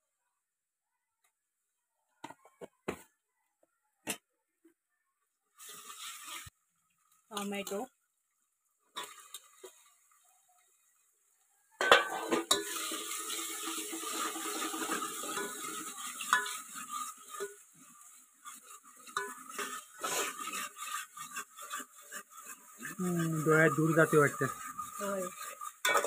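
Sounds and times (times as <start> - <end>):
food sizzling in a pot: 5.5 - 26.0
metal spoon scraping a pot: 11.8 - 26.0.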